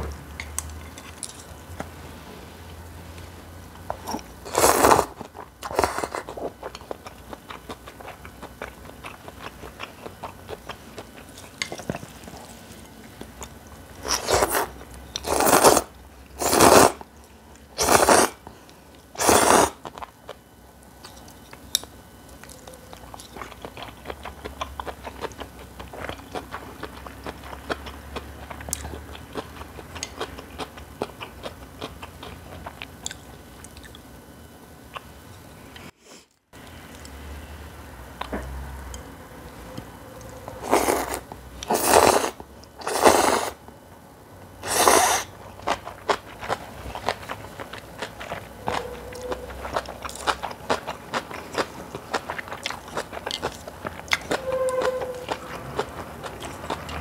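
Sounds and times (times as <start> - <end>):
chewing and mouth clicks: 21.0 - 34.1, 45.6 - 57.0.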